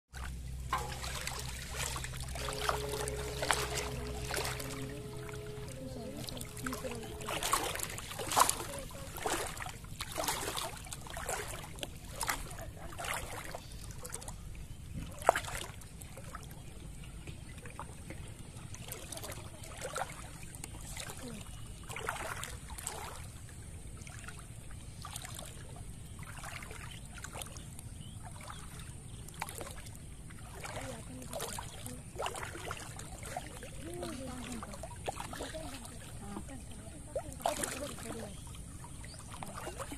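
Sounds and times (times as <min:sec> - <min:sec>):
water splashing and sloshing: 0:00.1 - 0:39.9
steady low rumble: 0:00.2 - 0:10.2.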